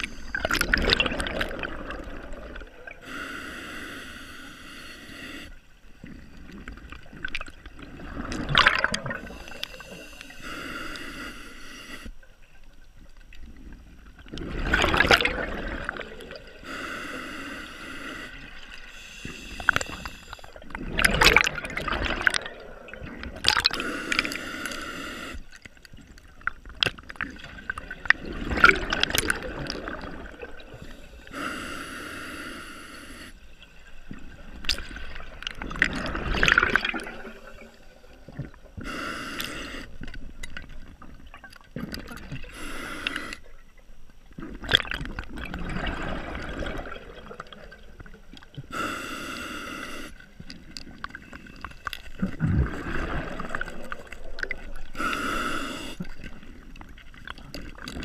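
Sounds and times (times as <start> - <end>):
gurgling exhaled bubbles: 0.0 - 3.0, 6.0 - 10.0, 13.6 - 16.6, 18.4 - 24.4, 26.4 - 30.8, 34.0 - 38.8, 44.3 - 48.7, 50.3 - 55.0
scuba regulator inhale hiss: 3.0 - 5.6, 9.2 - 12.1, 16.6 - 20.6, 23.8 - 25.5, 30.8 - 33.5, 38.8 - 40.0, 42.5 - 43.5, 48.7 - 50.2, 55.0 - 56.2.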